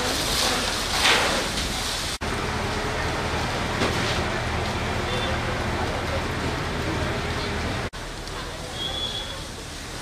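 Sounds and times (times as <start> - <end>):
hose water spraying: 0.0 - 7.2.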